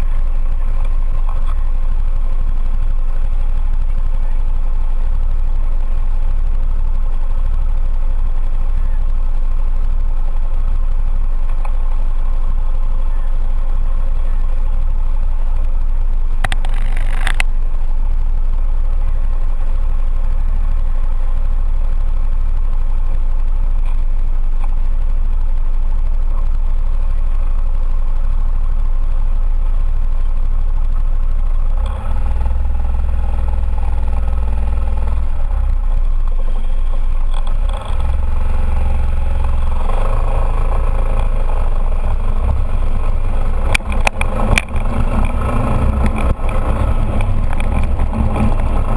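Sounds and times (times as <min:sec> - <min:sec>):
engine revving: 0:00.0 - 0:48.9
scooter engines idling: 0:00.0 - 0:48.9
brief crackle: 0:11.4 - 0:48.9.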